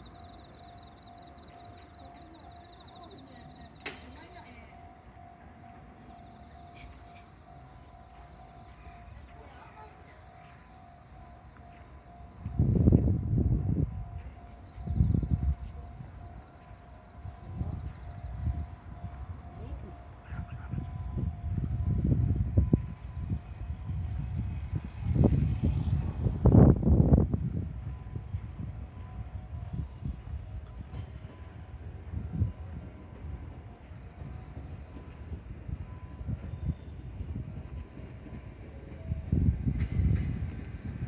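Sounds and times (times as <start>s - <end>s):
crickets trilling: 0.0s - 41.0s
sharp click: 3.8s - 4.1s.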